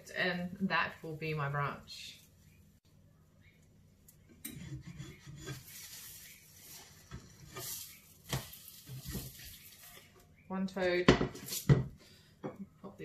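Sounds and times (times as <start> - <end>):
spatula scraping a frying pan: 4.4 - 10.0.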